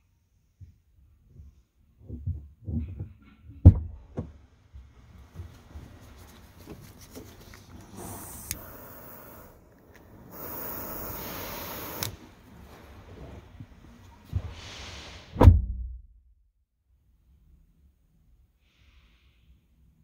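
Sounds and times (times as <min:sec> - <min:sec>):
butane torch hissing: 0:07.7 - 0:13.2.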